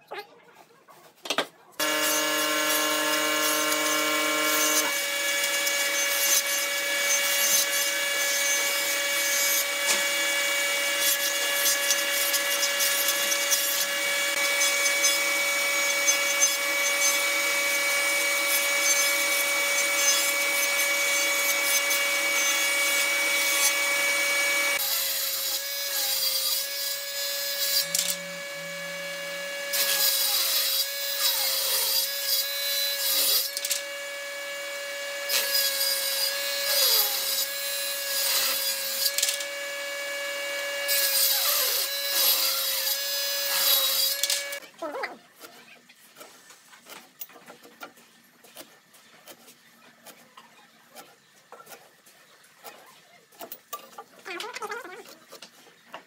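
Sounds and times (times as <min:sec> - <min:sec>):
jointer motor whine: 0:01.8 - 0:24.8, 0:26.7 - 0:30.1, 0:33.5 - 0:35.5, 0:43.0 - 0:44.6
knives cutting wood: 0:24.8 - 0:29.1, 0:40.9 - 0:52.0.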